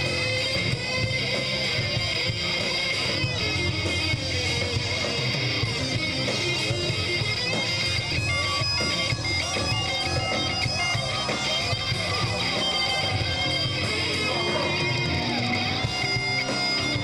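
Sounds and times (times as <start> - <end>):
electric guitar droning and bending: 0.0 - 17.0.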